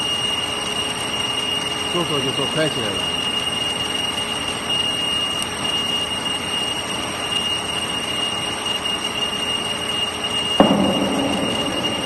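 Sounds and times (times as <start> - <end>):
high-pitched machine whine: 0.0 - 12.0.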